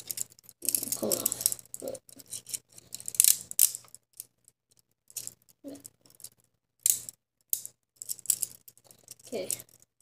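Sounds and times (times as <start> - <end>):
handcuffs clicking: 0.0 - 4.3.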